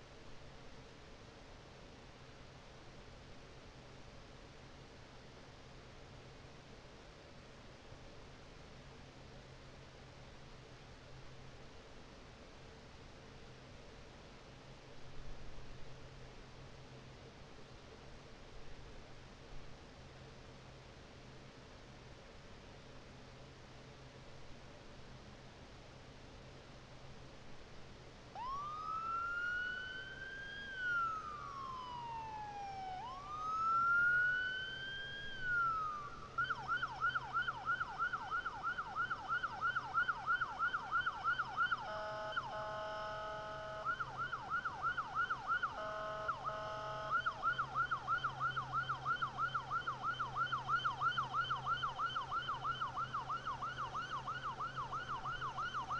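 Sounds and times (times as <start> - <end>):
siren wailing and yelping: 28.4 - 55.9
horn blasts: 45.7 - 47.2.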